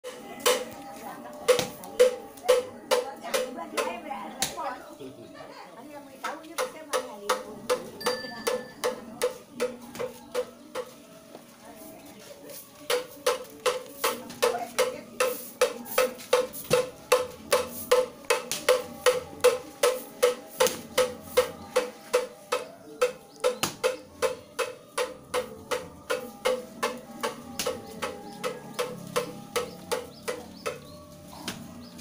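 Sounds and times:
hand bell ringing: 8.0s - 8.8s.

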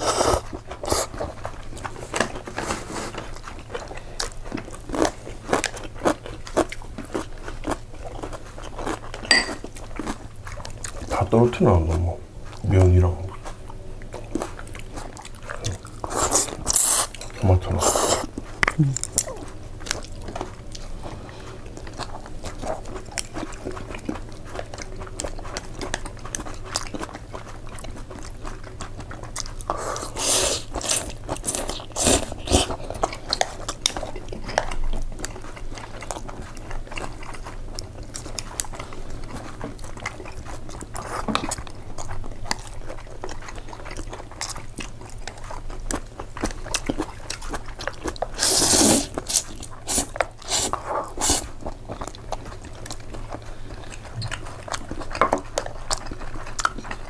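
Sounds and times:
person chewing food: 0.0s - 57.0s
wet mouth clicks: 17.8s - 19.4s, 48.2s - 51.5s.

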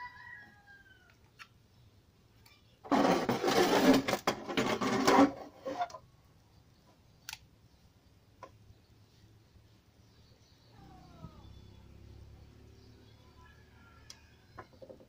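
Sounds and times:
cabinet scraping on wooden bench: 2.9s - 6.0s.

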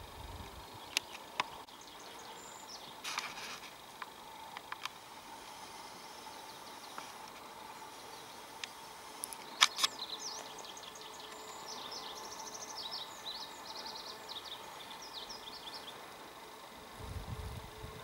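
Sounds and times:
faint outdoor hush: 0.0s - 18.0s
songbird twittering: 0.6s - 3.0s, 5.8s - 16.1s
sharp clicks: 8.6s - 10.5s.

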